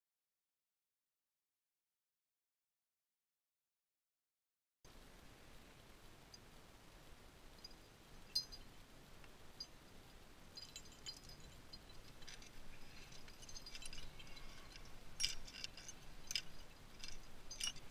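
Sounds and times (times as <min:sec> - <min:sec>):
climbing gear clinking: 0:07.6 - 0:08.7, 0:10.5 - 0:17.9.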